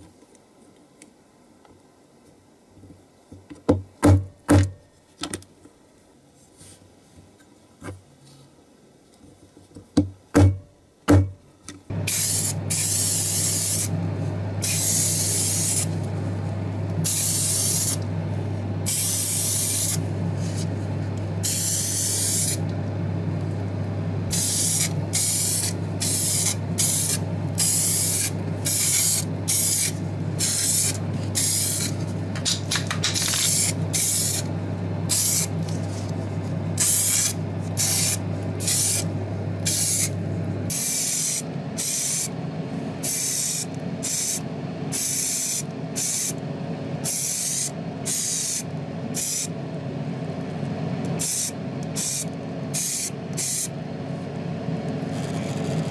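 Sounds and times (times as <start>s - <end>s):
steady low hum: 10.4s - 55.9s
paint spray hissing: 12.1s - 13.9s, 14.6s - 15.9s, 17.0s - 18.0s, 18.8s - 20.6s, 21.4s - 22.6s, 24.3s - 32.0s, 33.2s - 34.5s, 35.1s - 35.5s, 36.8s - 40.1s, 40.7s - 42.3s, 43.0s - 46.4s, 47.0s - 49.5s, 51.2s - 53.7s.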